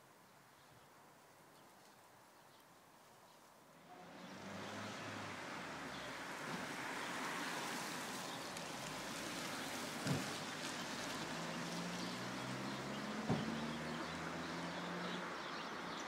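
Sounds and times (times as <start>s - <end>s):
tyre and road noise: 3.8s - 16.0s
short thump: 13.3s - 13.6s.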